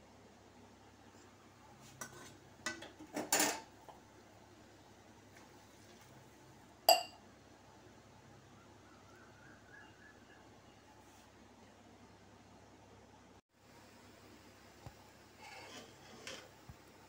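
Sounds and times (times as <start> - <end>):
pots and utensils clattering: 2.0 - 3.7.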